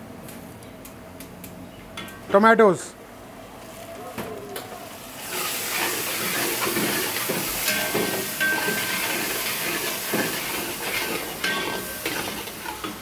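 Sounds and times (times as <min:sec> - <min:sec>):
tomatoes sizzling in hot oil: 0:04.8 - 0:13.0
steel spatula scraping a pan: 0:05.2 - 0:13.0.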